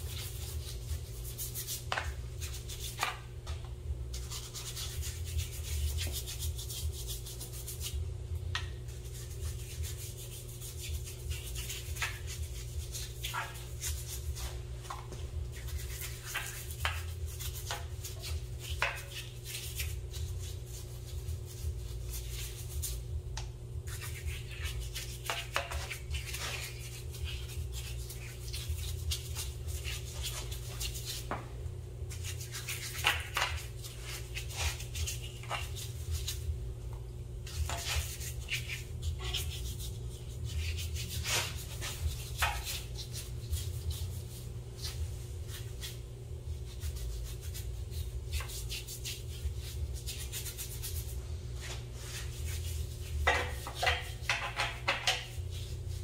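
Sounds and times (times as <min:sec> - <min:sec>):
steady low hum: 0:00.0 - 0:56.0
brush scrubbing metal: 0:23.9 - 0:31.3, 0:37.5 - 0:46.0.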